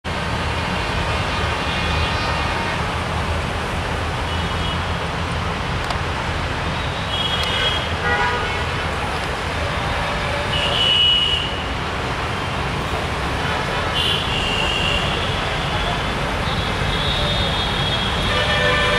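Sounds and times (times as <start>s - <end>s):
traffic din: 0.0s - 18.9s
high horn toots: 16.9s - 18.9s.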